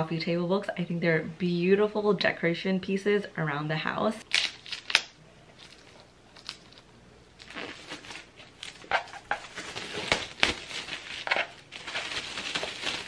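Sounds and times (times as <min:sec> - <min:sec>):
plastic shrink-wrap crinkling: 0:04.3 - 0:13.0.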